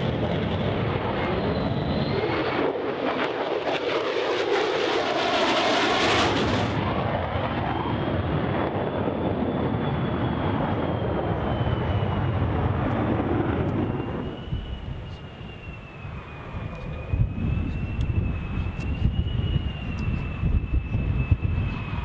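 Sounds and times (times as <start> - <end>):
jet engine roar: 0.0 - 22.0
thin whistle: 13.9 - 22.0.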